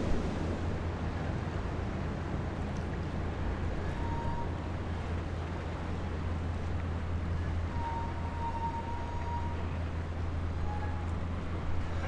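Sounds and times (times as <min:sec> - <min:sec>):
moving water: 0:00.0 - 0:12.0
ship engines droning: 0:00.0 - 0:12.0.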